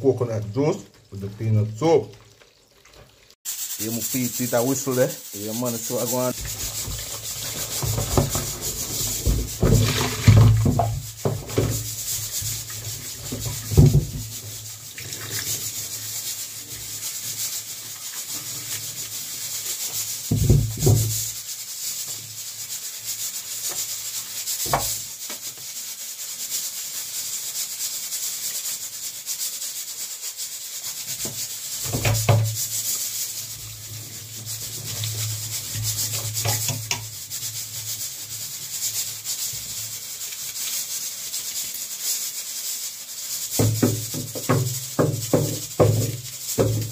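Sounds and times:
water splashing and dripping: 0:00.0 - 0:21.4, 0:30.8 - 0:37.9, 0:38.6 - 0:42.0, 0:43.4 - 0:46.9
steady water hiss: 0:00.0 - 0:46.9
pot knocking against sink: 0:09.2 - 0:11.8, 0:13.3 - 0:14.4, 0:20.3 - 0:21.2, 0:43.6 - 0:46.9.

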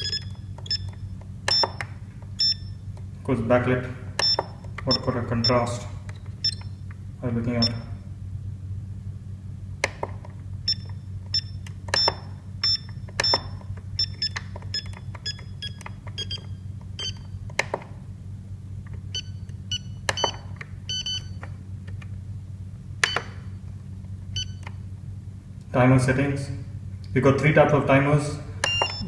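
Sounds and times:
short electronic key beeps: 0:00.0 - 0:01.8, 0:02.4 - 0:02.8, 0:04.2 - 0:05.6, 0:06.4 - 0:06.8, 0:07.6 - 0:08.0, 0:10.7 - 0:17.4, 0:19.1 - 0:21.4, 0:24.4 - 0:24.7, 0:28.6 - 0:29.0
steady low hum: 0:00.0 - 0:29.0.

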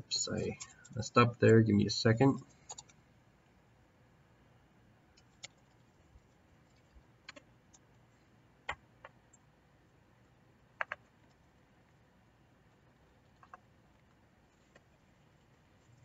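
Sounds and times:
keyboard keystrokes: 0:10.8 - 0:11.0.

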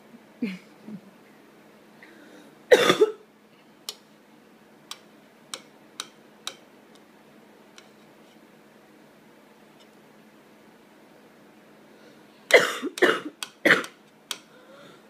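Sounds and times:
child coughing: 0:02.7 - 0:03.2, 0:12.5 - 0:14.0
metal spoon clicking on bowl: 0:04.9 - 0:06.6.

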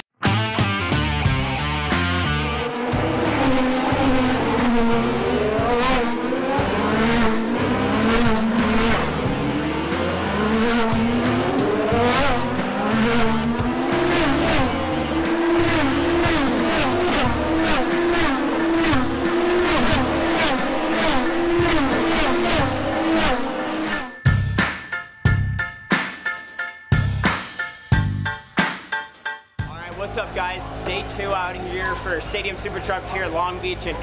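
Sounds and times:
race cars passing at speed: 0:02.3 - 0:24.1.

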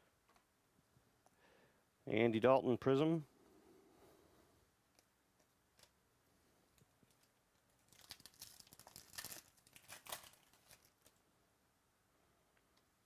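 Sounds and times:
foil wrapper tearing and crinkling: 0:07.1 - 0:11.2.

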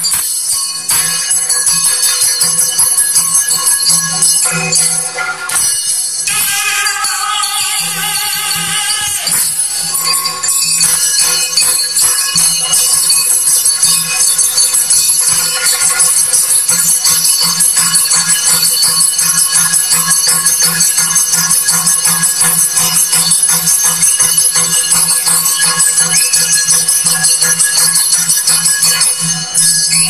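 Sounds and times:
jingling ankle bells: 0:00.0 - 0:30.0
person singing: 0:06.2 - 0:10.5
fast driving drumming: 0:07.6 - 0:30.0.

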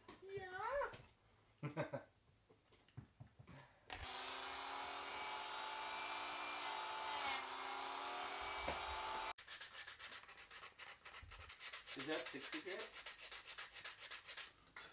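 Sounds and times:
power carving tool on wood: 0:03.9 - 0:09.4.

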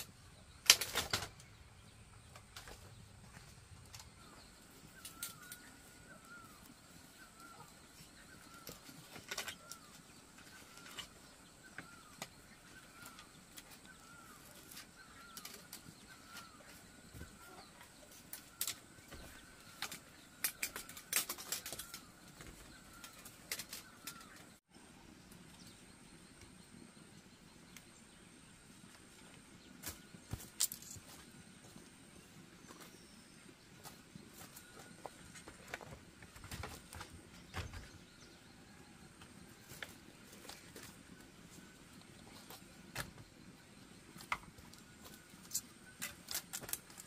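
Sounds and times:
bamboo poles clicking and knocking: 0:00.0 - 0:24.6, 0:28.9 - 0:31.3, 0:33.8 - 0:38.0, 0:42.1 - 0:43.3, 0:44.0 - 0:47.0.

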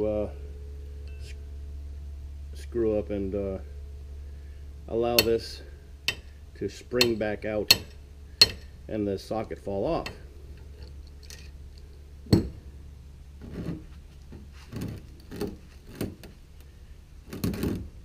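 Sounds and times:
steady low hum: 0:00.0 - 0:18.0
metal knocks and clinks: 0:07.0 - 0:08.8.

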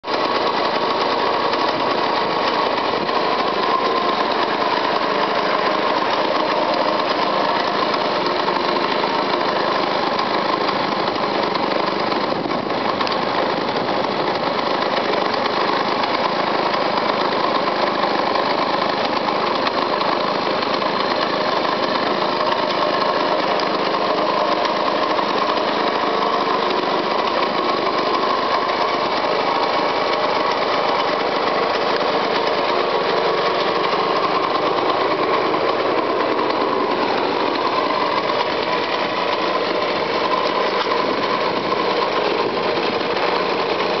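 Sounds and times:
two-stroke motorcycle engine running: 0:00.0 - 0:44.0.

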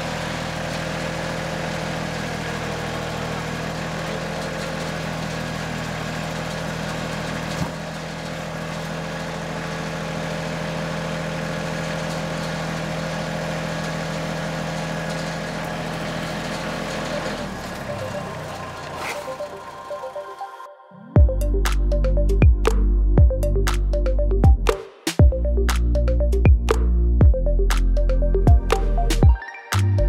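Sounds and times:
tractor engine idling: 0:00.0 - 0:20.3, 0:21.2 - 0:30.0.

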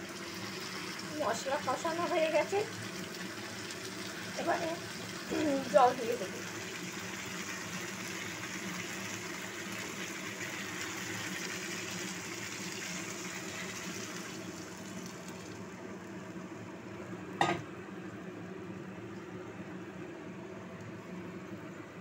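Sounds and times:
water sizzling in hot pan: 0:00.0 - 0:16.8.

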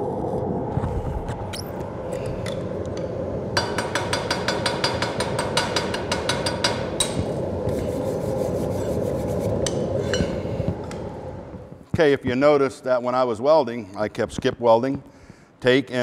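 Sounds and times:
steady rushing noise: 0:00.0 - 0:12.4.

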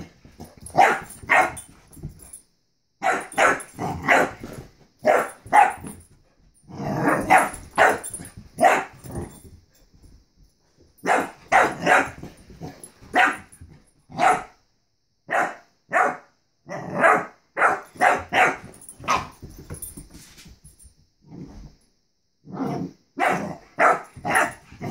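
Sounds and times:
puppy barking: 0:00.8 - 0:01.6, 0:03.0 - 0:04.4, 0:05.0 - 0:05.9, 0:07.1 - 0:09.0, 0:11.0 - 0:12.2, 0:13.1 - 0:13.5, 0:14.1 - 0:14.6, 0:15.3 - 0:16.3, 0:16.9 - 0:19.3, 0:23.2 - 0:24.9.

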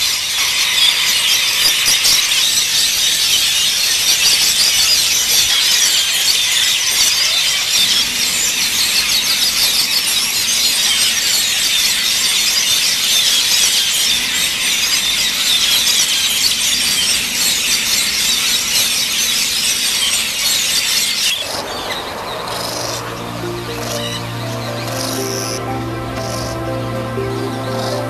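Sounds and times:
starlings chattering: 0:21.1 - 0:28.0
music: 0:22.5 - 0:28.0.

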